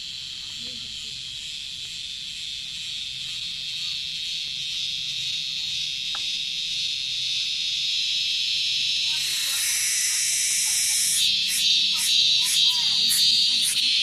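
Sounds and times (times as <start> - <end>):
cicada buzzing: 0.0 - 14.0.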